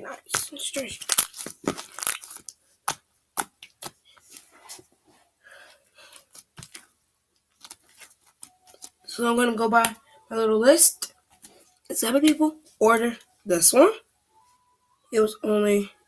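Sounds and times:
slime crackling and popping: 0.3 - 4.0.

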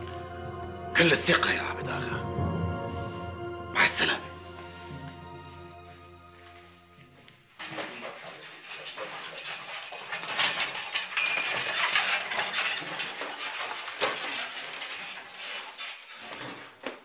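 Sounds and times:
horse-drawn carriage clattering: 7.6 - 16.9.

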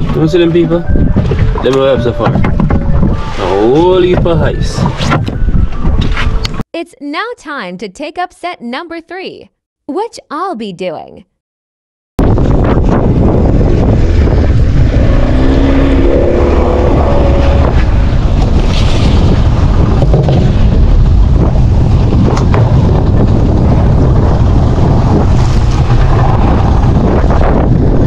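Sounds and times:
wind buffeting microphone: 0.0 - 6.6, 12.2 - 28.0
boat motor running: 13.8 - 18.7.

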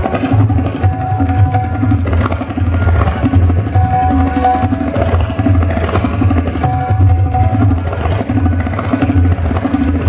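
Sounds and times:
deep bass drum strokes: 0.0 - 10.0
tabla strokes: 0.0 - 10.0
sarangi sustained melody: 0.1 - 9.8.

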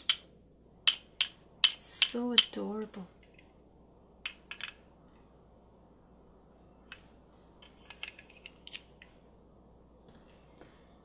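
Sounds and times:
plastic toy pieces clicking: 4.2 - 4.8, 7.6 - 9.0.

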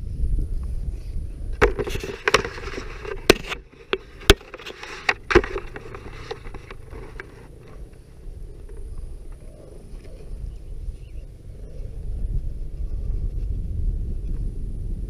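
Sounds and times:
dirt bike knocks and rattles: 1.6 - 8.0
engine low rumble: 2.6 - 15.0.

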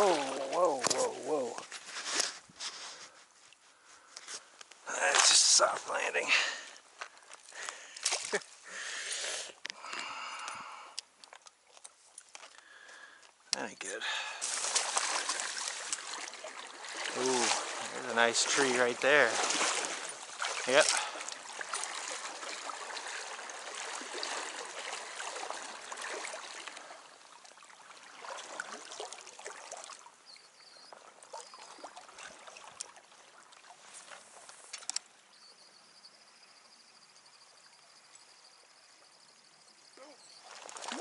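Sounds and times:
river water swishing around legs: 0.0 - 10.3, 13.8 - 35.0, 40.2 - 41.0.

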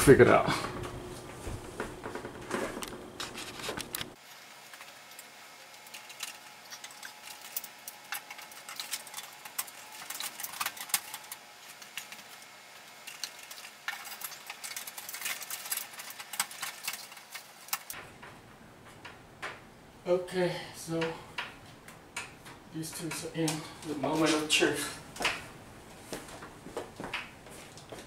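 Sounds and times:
wires and metal parts rattling: 1.9 - 19.7.

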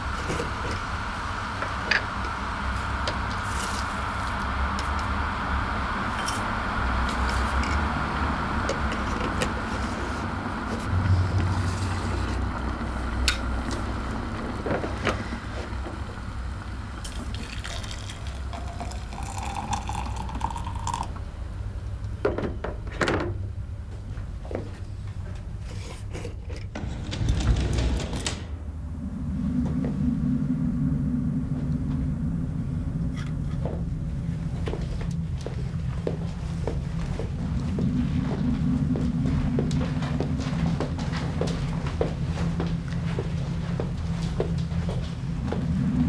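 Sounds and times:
electric kettle heating water: 0.0 - 22.5.

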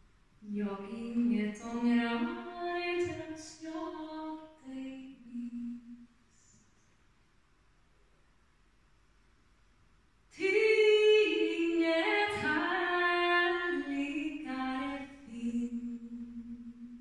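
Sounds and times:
woman singing unaccompanied: 0.4 - 6.0, 10.3 - 17.0.

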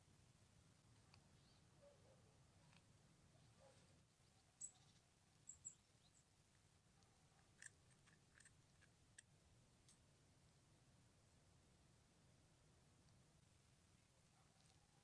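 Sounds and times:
faint buckle clicks: 7.0 - 10.0.

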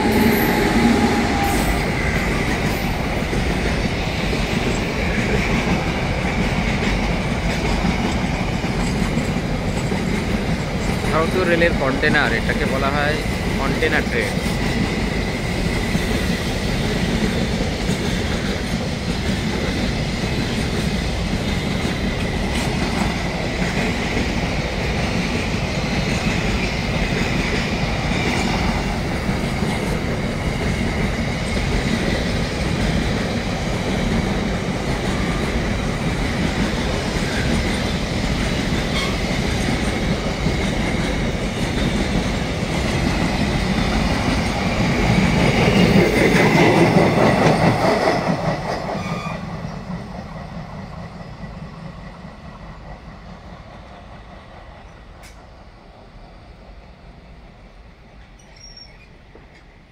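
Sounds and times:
train wheels rumbling on rail: 0.0 - 59.9
clickety-clack over rail joints: 0.1 - 55.5, 58.1 - 59.8
faint high wheel squeal: 38.9 - 39.3, 58.4 - 59.2.

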